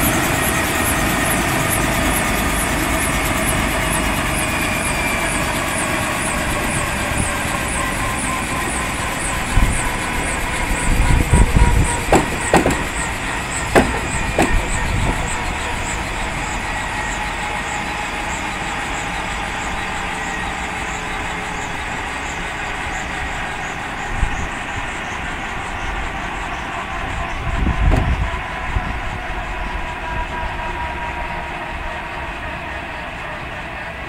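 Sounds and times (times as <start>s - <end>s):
helicopter rotor noise: 0.0s - 34.0s
helicopter turbine whine: 0.0s - 34.0s
brief knocks: 12.0s - 13.1s, 13.7s - 15.2s.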